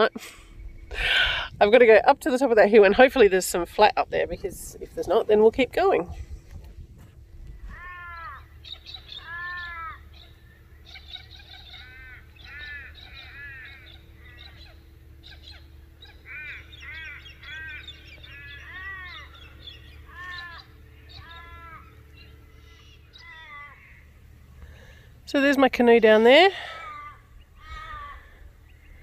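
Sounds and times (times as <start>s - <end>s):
low background rumble: 0.0s - 29.0s
crows cawing: 7.6s - 10.3s, 10.9s - 25.0s, 26.6s - 29.0s.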